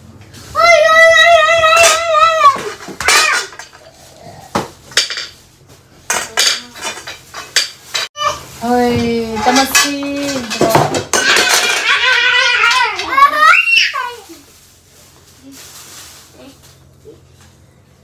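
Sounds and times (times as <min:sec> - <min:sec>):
metal tubes clinking and knocking: 0:01.8 - 0:03.9, 0:04.8 - 0:05.4, 0:06.1 - 0:08.1, 0:08.9 - 0:13.2.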